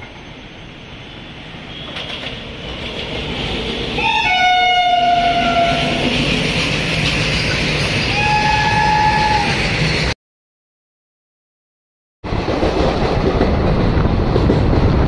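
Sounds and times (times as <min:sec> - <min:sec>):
passenger train rumbling: 0:00.0 - 0:10.2, 0:12.2 - 0:15.0
train horn blast: 0:04.0 - 0:06.0, 0:08.1 - 0:09.6.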